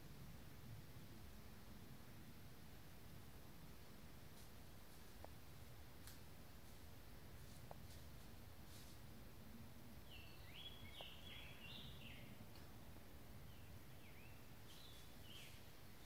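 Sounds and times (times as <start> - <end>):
steady background hiss: 0.0 - 16.0
songbird singing faintly: 3.8 - 16.0.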